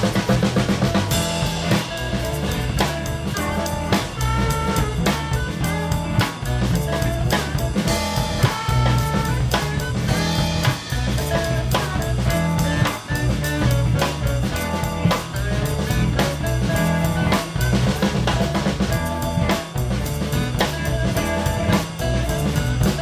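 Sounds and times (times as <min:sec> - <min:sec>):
drum-kit beat: 0:00.0 - 0:23.0
electric guitar: 0:00.0 - 0:23.0
keyboard: 0:00.0 - 0:23.0
pop-rock music: 0:00.0 - 0:23.0.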